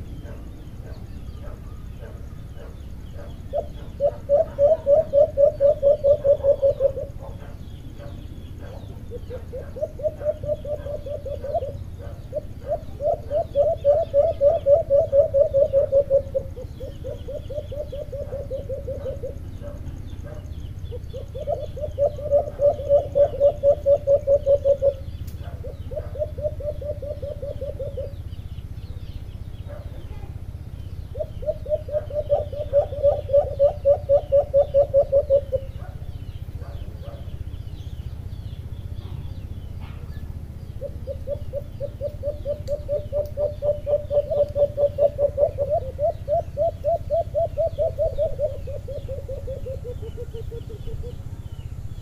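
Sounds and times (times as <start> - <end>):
doves cooing: 0.0 - 52.0.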